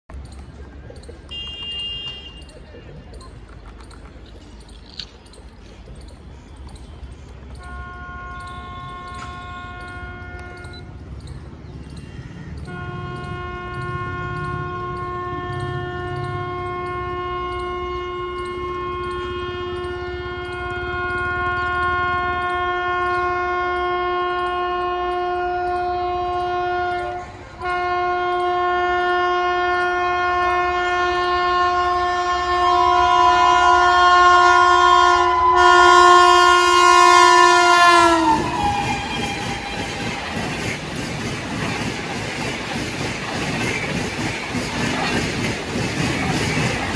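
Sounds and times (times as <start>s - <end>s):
train coaches rushing past: 0.1s - 46.9s
locomotive horn blasts: 1.3s - 2.5s, 7.6s - 11.0s, 12.6s - 40.6s.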